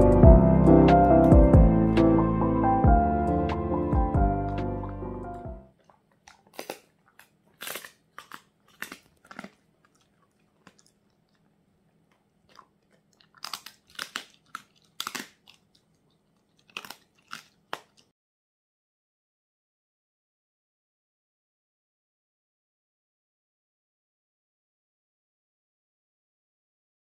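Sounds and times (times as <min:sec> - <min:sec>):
dog crunching hard treat: 0:05.7 - 0:18.1.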